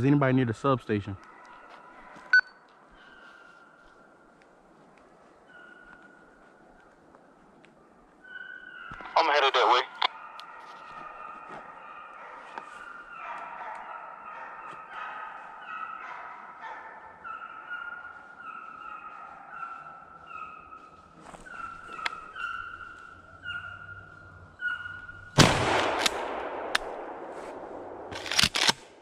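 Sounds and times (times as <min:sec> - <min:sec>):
hounds baying: 0:01.2 - 0:04.1, 0:05.2 - 0:06.6, 0:07.9 - 0:25.4.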